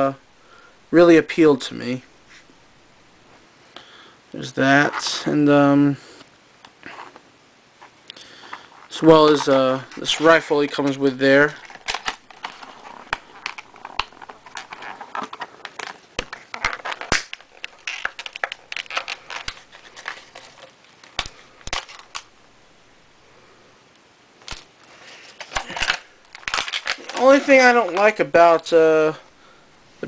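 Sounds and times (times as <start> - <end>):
plastic packaging crinkling: 8.4 - 22.3, 24.4 - 28.7.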